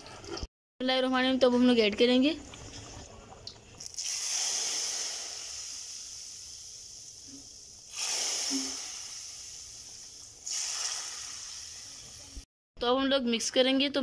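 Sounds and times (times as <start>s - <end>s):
hot oil sizzling in pot: 3.8s - 12.5s.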